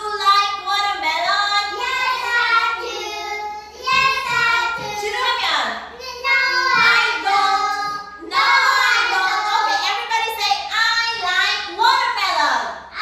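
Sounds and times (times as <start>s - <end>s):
children singing: 1.3s - 5.3s, 6.0s - 9.8s.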